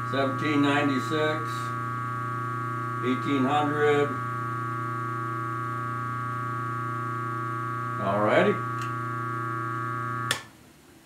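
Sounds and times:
bench grinder humming: 0:00.0 - 0:10.4
man's voice: 0:00.1 - 0:01.8, 0:03.0 - 0:04.2, 0:08.0 - 0:08.7.

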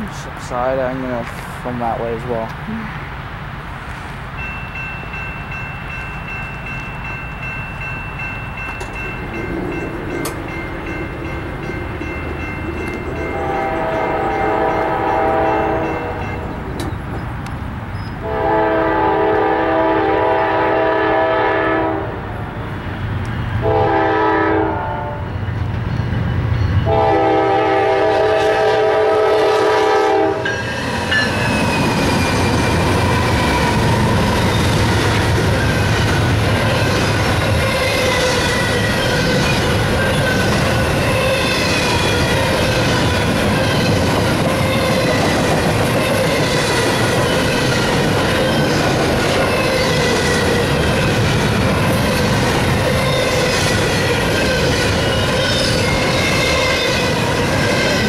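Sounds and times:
train wheels on rails: 0:00.0 - 0:58.0
crossing bell ringing: 0:04.3 - 0:17.3, 0:25.0 - 0:27.9, 0:30.3 - 0:58.0
locomotive air horn blasts: 0:13.3 - 0:16.4, 0:18.2 - 0:22.2, 0:23.6 - 0:25.3, 0:26.8 - 0:30.5.

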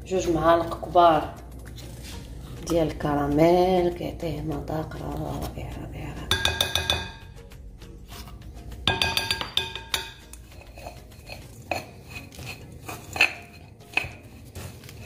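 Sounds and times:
spoon clinking on glass bowl: 0:06.3 - 0:07.3, 0:08.9 - 0:12.2.

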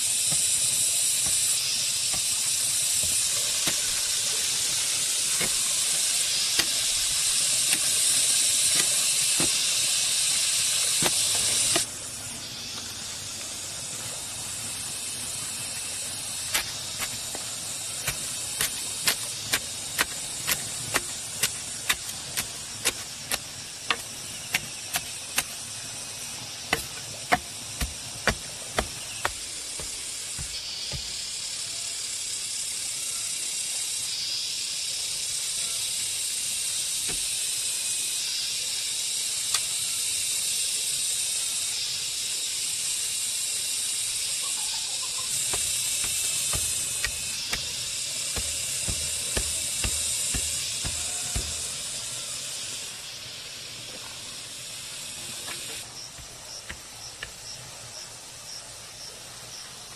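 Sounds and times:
wooden stick tamping soil: 0:00.0 - 0:12.0, 0:16.0 - 0:31.4, 0:45.3 - 0:52.1, 0:55.3 - 0:57.7
cicada hiss: 0:00.0 - 0:59.9
hoe thudding in soil: 0:10.9 - 0:11.9, 0:26.6 - 0:31.2, 0:45.4 - 0:51.8.

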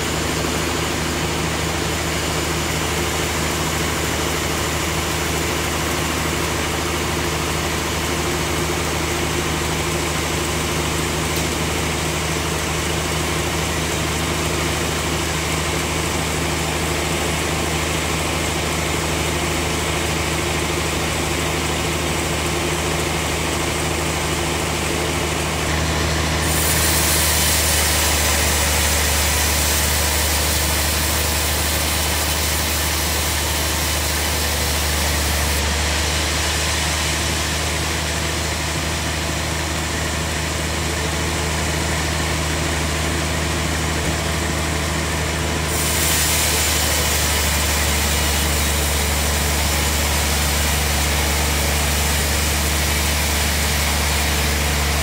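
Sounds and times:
bandsaw drive drone: 0:22.3 - 0:41.1, 0:45.2 - 0:55.0
hiss of sawing: 0:25.7 - 0:39.1, 0:45.6 - 0:55.0.

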